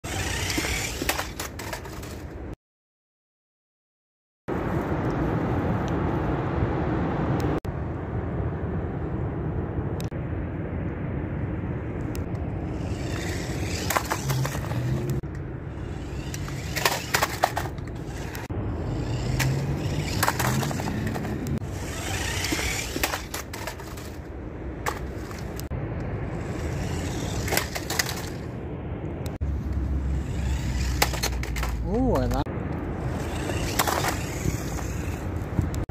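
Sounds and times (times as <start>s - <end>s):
toy car wheels and motor rattling: 0.0s - 2.3s, 12.7s - 25.7s, 26.3s - 28.5s, 30.0s - 32.4s, 33.0s - 35.5s
toy car knocking and scraping: 0.0s - 2.4s, 12.7s - 25.7s, 26.3s - 28.5s, 29.7s - 35.8s.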